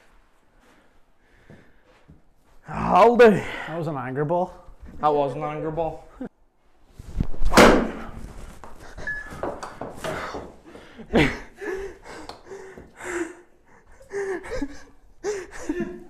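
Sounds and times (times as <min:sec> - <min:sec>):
people talking: 0:02.7 - 0:06.1
people laughing: 0:10.7 - 0:12.7.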